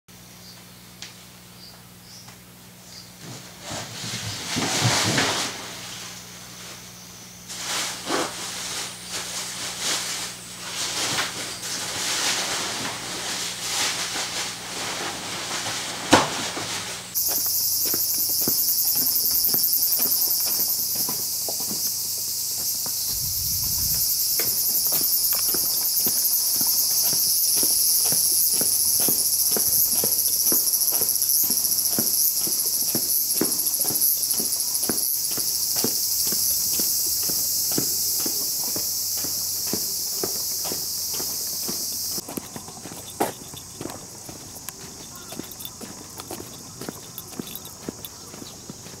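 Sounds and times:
footsteps on pavement: 0:17.1 - 0:49.0
high-pitched insect chorus: 0:17.1 - 0:49.0.

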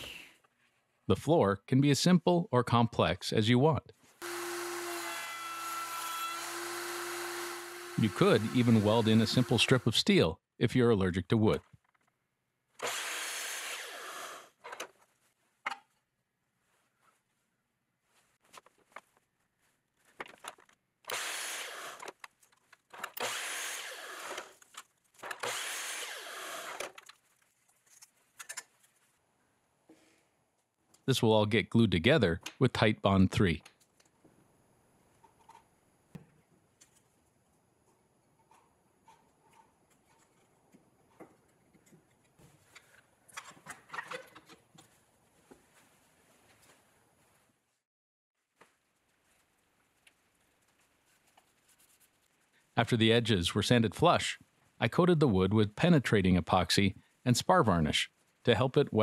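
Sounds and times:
miter saw cutting wood: 0:04.2 - 0:10.0, 0:12.8 - 0:14.6, 0:21.1 - 0:22.1, 0:23.2 - 0:24.6, 0:25.4 - 0:26.9
clicks and knocks of wood handling: 0:20.0 - 0:20.8
wood pieces and clamps clicking: 0:20.1 - 0:27.2, 0:41.2 - 0:44.8.

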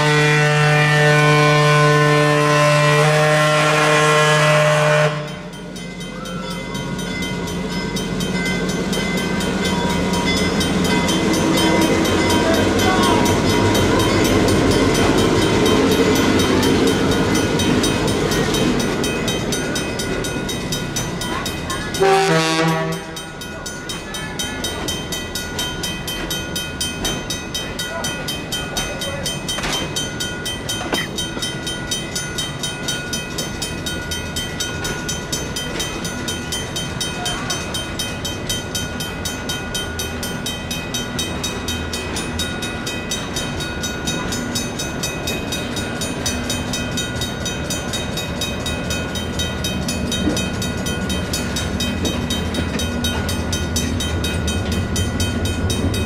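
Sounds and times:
crossing bells ringing: 0:00.0 - 0:56.0
diesel locomotive engine drone: 0:00.0 - 0:56.0
train cars rumbling past: 0:00.0 - 0:56.0.

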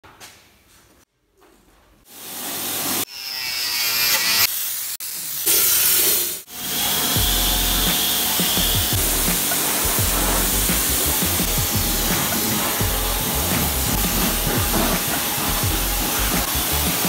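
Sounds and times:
power tool running: 0:02.1 - 0:17.0
air spray gun hissing: 0:04.5 - 0:17.0
pressure washer spraying: 0:04.5 - 0:17.0.

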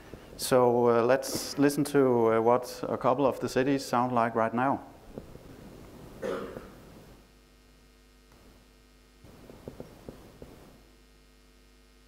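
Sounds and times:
person coughing: 0:06.2 - 0:06.8.

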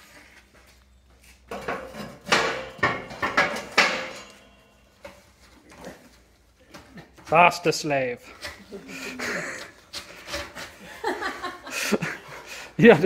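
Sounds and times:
steel slats clanking: 0:01.5 - 0:04.8.

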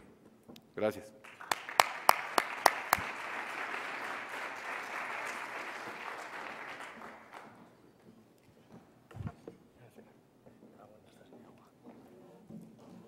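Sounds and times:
audience applauding: 0:01.2 - 0:07.8
sharp claps near microphone: 0:01.2 - 0:07.8.

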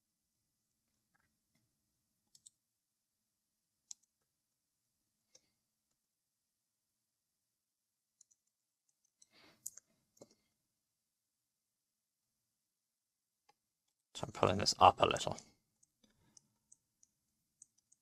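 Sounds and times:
computer mouse clicks: 0:02.3 - 0:02.6, 0:03.8 - 0:04.2, 0:08.2 - 0:10.4, 0:15.8 - 0:18.0.

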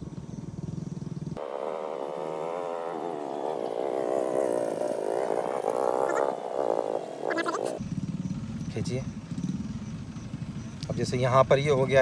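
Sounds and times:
low humming buzz: 0:00.0 - 0:08.4
frogs calling: 0:00.2 - 0:11.0.

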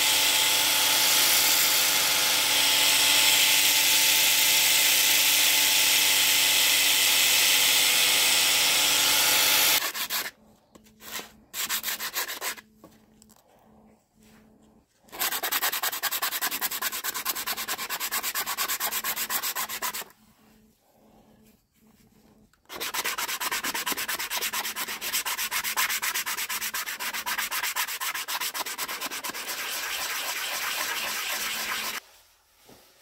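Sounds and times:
sanding wood rasping: 0:09.6 - 0:12.6, 0:15.1 - 0:20.1, 0:22.7 - 0:32.0.

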